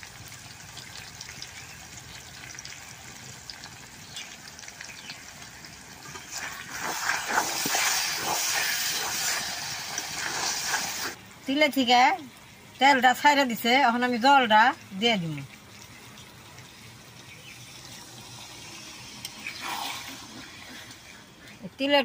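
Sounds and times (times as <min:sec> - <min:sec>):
curry sizzling in oil: 0:00.0 - 0:21.6.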